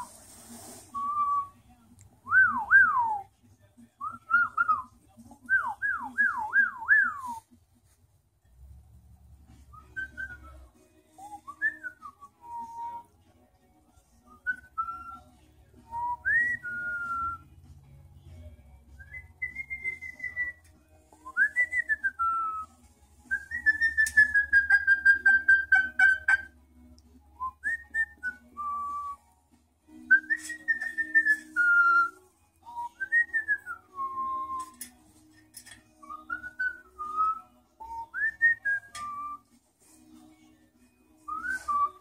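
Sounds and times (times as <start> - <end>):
cockatoo whistling: 23.3 - 26.5, 30.1 - 34.9.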